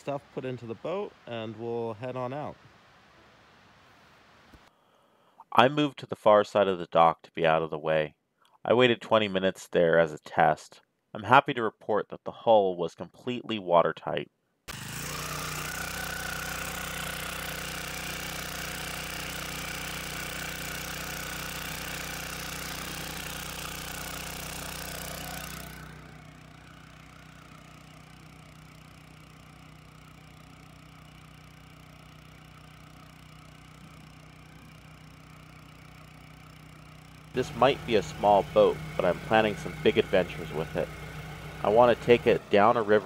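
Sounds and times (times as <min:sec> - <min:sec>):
outboard motor running: 0:14.7 - 0:43.0.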